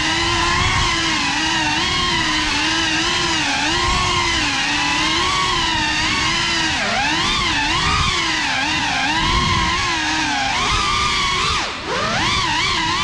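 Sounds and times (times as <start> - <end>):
drone motors whining: 0.0 - 13.0.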